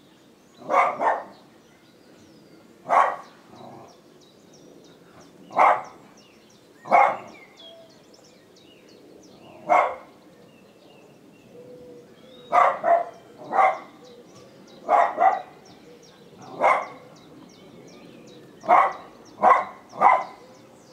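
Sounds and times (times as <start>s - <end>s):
dog barking: 0.6s - 1.4s, 2.9s - 3.3s, 5.5s - 6.0s, 6.9s - 7.4s, 9.6s - 10.1s, 12.5s - 14.0s, 14.8s - 15.6s, 16.5s - 17.1s, 18.6s - 20.4s.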